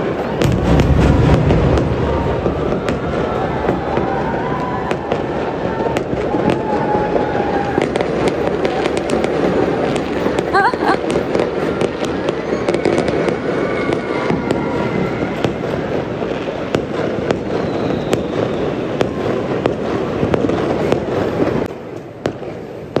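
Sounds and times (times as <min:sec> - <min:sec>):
fireworks bursting: 0:00.0 - 0:23.0
sharp firework cracks: 0:00.0 - 0:23.0.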